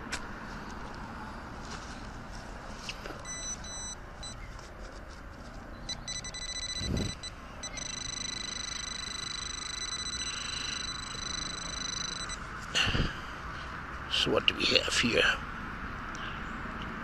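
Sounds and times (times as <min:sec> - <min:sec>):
metal detector beeping: 0:03.2 - 0:04.5, 0:05.8 - 0:12.4.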